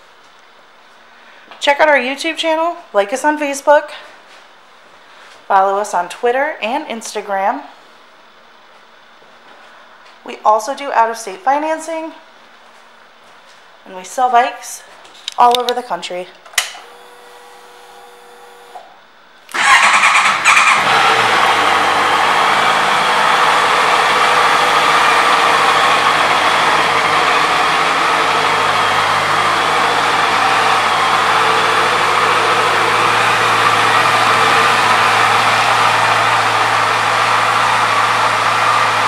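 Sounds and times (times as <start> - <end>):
motorcycle engine starting and idling: 19.5 - 39.0.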